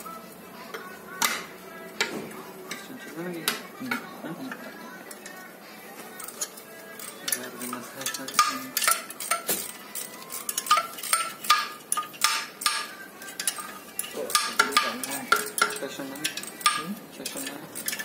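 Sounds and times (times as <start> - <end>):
tools clinking on metal: 6.1 - 18.0.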